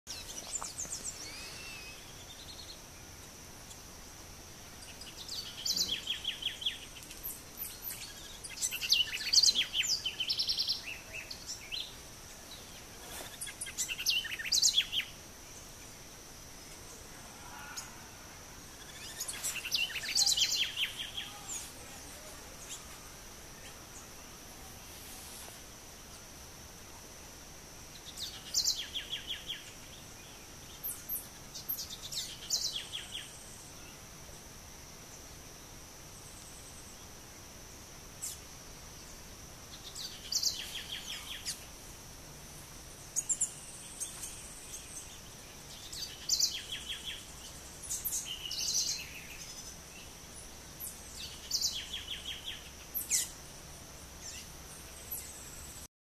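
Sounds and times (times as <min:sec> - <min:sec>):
songbirds chirping and trilling: 0:00.1 - 0:55.9
high-pitched insect drone: 0:16.6 - 0:24.9.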